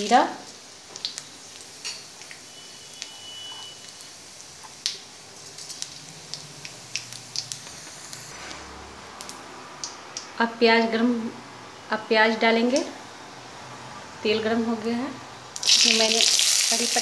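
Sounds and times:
spices sizzling in hot oil: 0:00.0 - 0:10.3, 0:15.5 - 0:17.0
oil popping and crackling: 0:00.4 - 0:08.3, 0:15.5 - 0:17.0.

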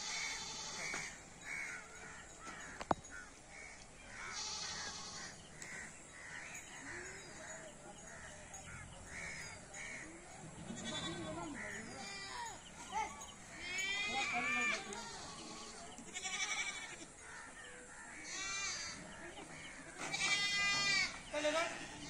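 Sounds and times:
crows cawing: 0:00.0 - 0:07.6, 0:08.2 - 0:10.2, 0:16.3 - 0:21.2.

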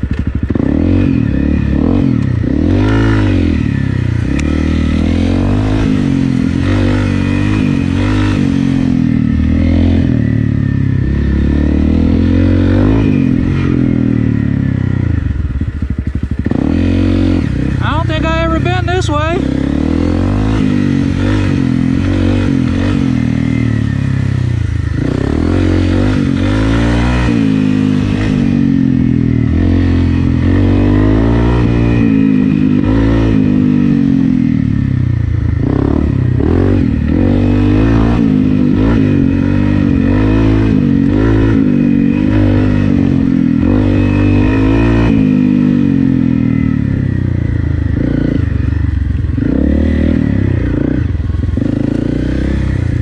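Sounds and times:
motorcycle clatter: 0:00.0 - 0:01.0
motorcycle engine revving: 0:00.0 - 0:53.0.

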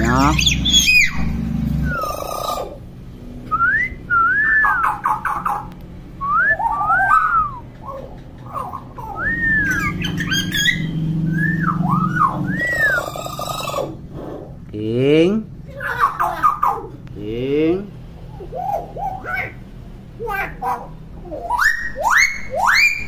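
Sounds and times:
myna bird whistles: 0:06.2 - 0:07.7, 0:09.0 - 0:13.2.

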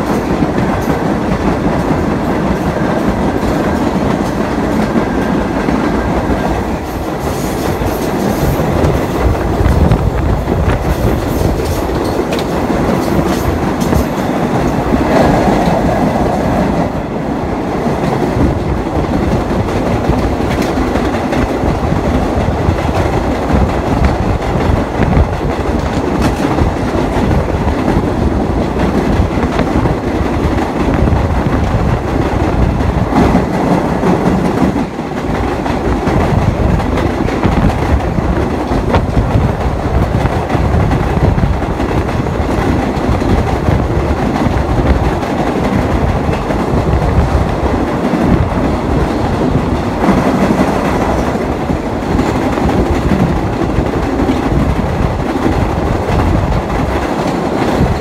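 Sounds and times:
wheels clicking over rail joints: 0:00.0 - 0:15.9
subway train rumble: 0:00.0 - 0:58.0.

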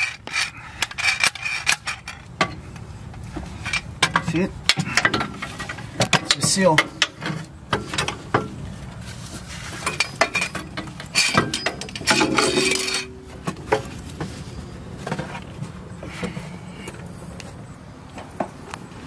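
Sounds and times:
scraping: 0:00.0 - 0:17.0
metal tools clinking: 0:09.7 - 0:13.9.

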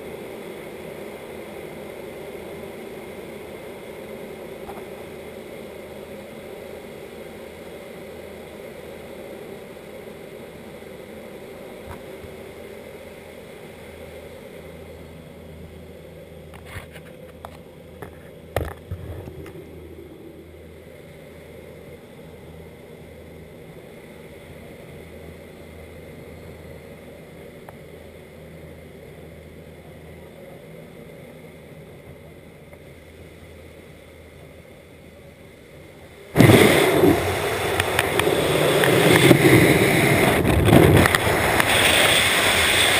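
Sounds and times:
plane engines droning: 0:00.0 - 0:42.9
freefall wind on microphone: 0:36.3 - 0:42.9.

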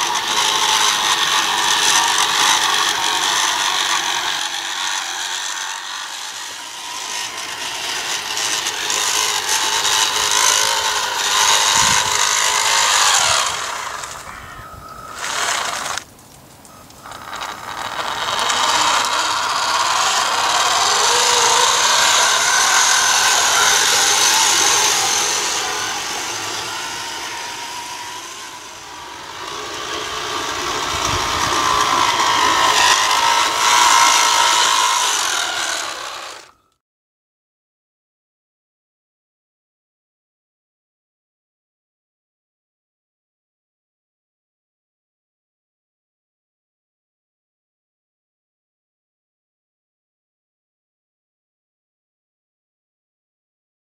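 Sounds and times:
small electric motors whirring: 0:00.0 - 0:36.8.

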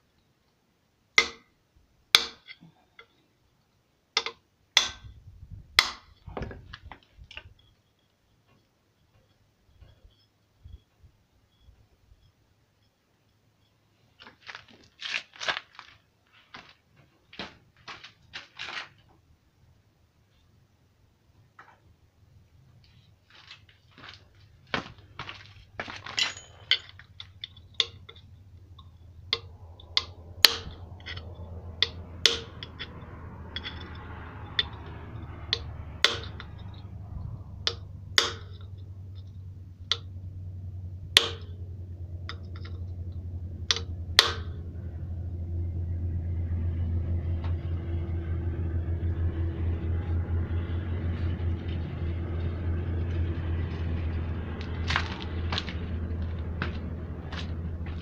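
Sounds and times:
hammer striking metal: 0:01.2 - 0:01.5, 0:02.2 - 0:02.5, 0:04.2 - 0:05.1, 0:29.3 - 0:34.9, 0:35.5 - 0:36.5, 0:37.7 - 0:38.6, 0:41.2 - 0:41.6, 0:43.7 - 0:44.6
low pulsing hum: 0:24.3 - 0:58.0.

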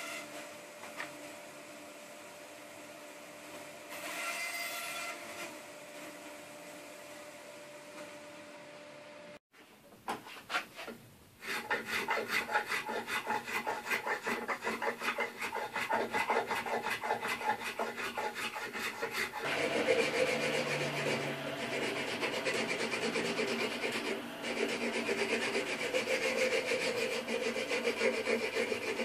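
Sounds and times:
rasp filing wood: 0:10.4 - 0:29.0.

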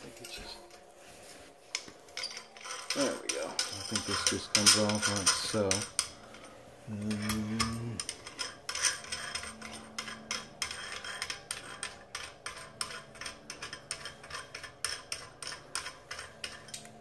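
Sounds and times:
metal parts clinking and scraping: 0:01.7 - 0:17.0.

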